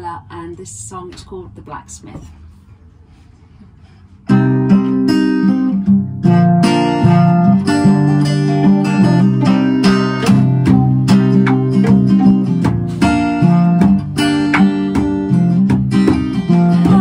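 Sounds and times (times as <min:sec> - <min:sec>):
acoustic guitar strumming chords: 0:04.2 - 0:17.0.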